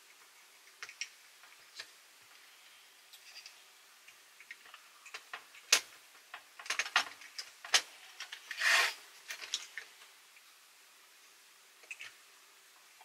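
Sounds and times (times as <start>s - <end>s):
plastic and metal parts clicking: 4.4s - 8.5s
brief scraping rub: 8.5s - 9.0s.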